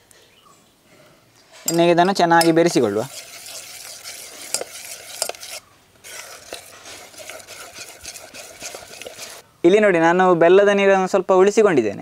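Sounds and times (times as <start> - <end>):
spoon stirring wet batter: 1.6 - 9.4
spoon clinking on steel bowl: 1.7 - 5.6.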